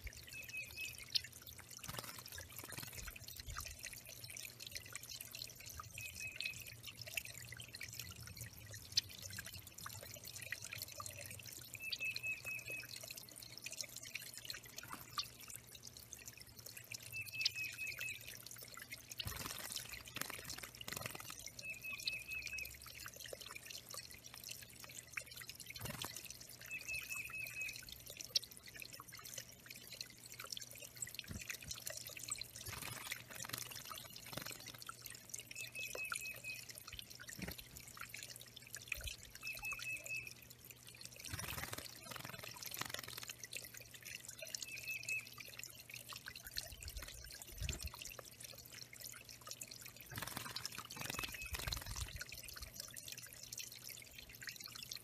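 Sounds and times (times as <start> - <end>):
water trickling over stones: 0.0 - 55.0
bird splashing in water: 19.2 - 21.5, 41.3 - 43.4.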